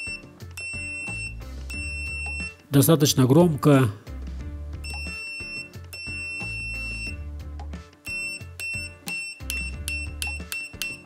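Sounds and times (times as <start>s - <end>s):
multimeter high-pitched beeps: 0.0s - 2.6s, 4.8s - 7.2s, 8.0s - 11.0s
background music: 0.0s - 11.0s.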